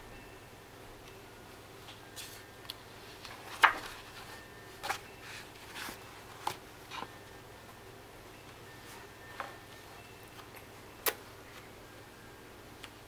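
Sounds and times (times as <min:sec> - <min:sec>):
book pages patted and rustling: 0:03.0 - 0:07.2.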